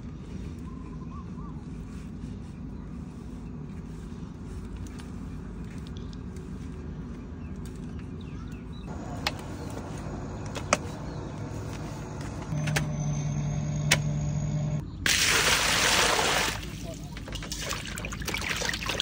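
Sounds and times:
steady hum: 8.6 - 14.8.

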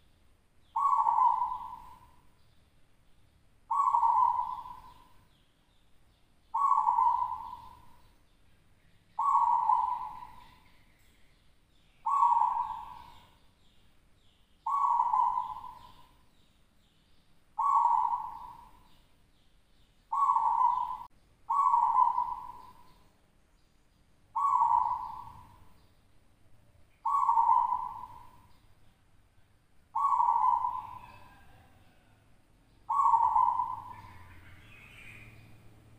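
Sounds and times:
dove cooing: 0.8 - 2.2, 3.7 - 5.2, 6.5 - 8.0, 9.2 - 10.6, 12.0 - 13.4, 14.6 - 16.2, 17.6 - 19.0, 20.1 - 23.0, 24.4 - 25.7, 27.0 - 28.5, 29.9 - 32.1, 32.9 - 35.5.

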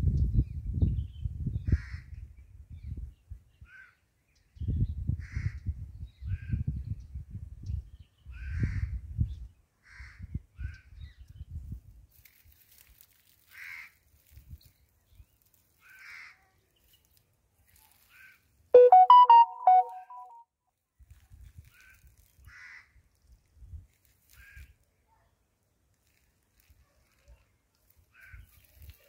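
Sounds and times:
wind rumbling on microphone: 0.0 - 3.5, 4.6 - 9.6, 10.2 - 12.1.

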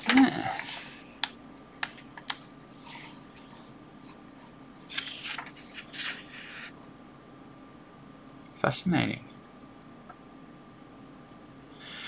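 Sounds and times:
paper page rustling: 0.0 - 1.0, 1.9 - 6.8.

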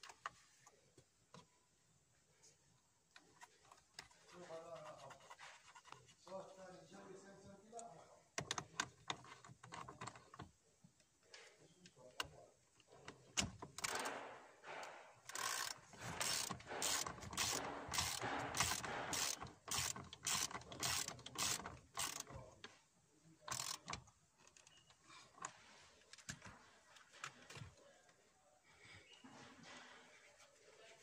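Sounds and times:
socket ratchet clicking: 13.8 - 14.2, 15.3 - 22.4, 23.5 - 24.0.

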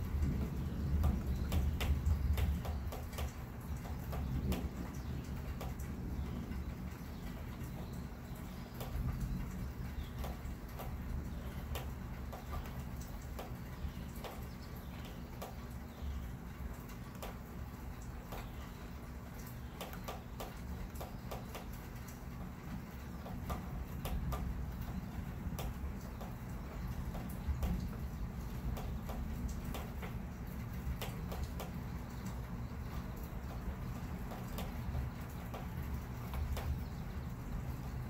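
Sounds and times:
storm low rumble: 0.0 - 2.9
faint ticks and clicks: 0.1 - 38.0.

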